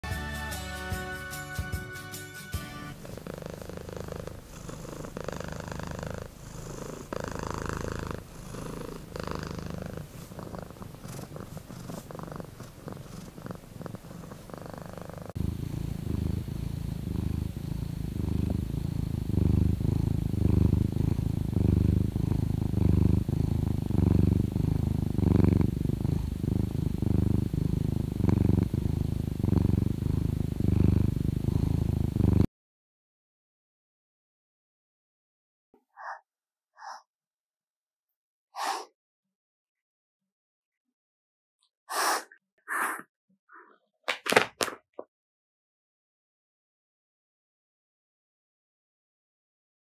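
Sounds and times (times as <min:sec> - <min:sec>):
cat purring: 0:02.6 - 0:32.5.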